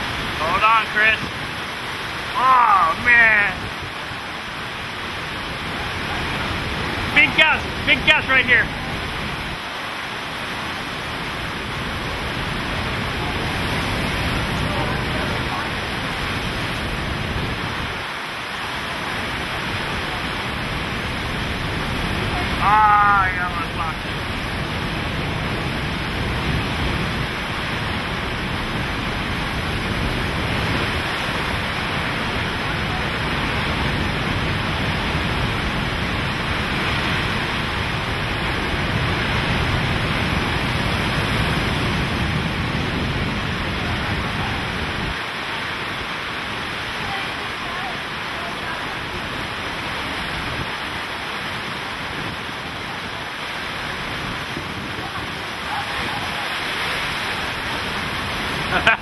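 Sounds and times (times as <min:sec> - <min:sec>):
driving rain: 0:00.0 - 0:59.0
strong wind: 0:00.0 - 0:59.0.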